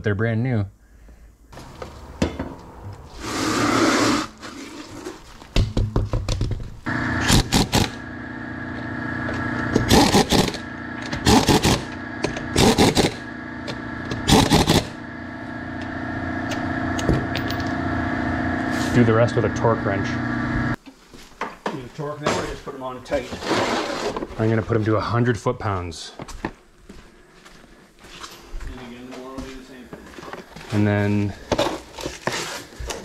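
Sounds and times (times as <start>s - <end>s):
steady hum: 0.6s - 20.8s
impact wrench bursts: 3.1s - 4.3s, 6.9s - 17.8s.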